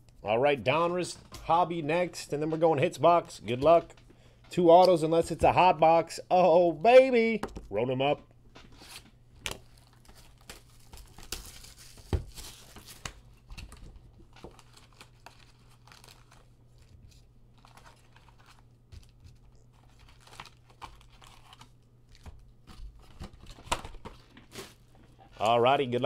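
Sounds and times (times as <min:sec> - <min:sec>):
foil packs crinkling: 0:08.8 - 0:26.0.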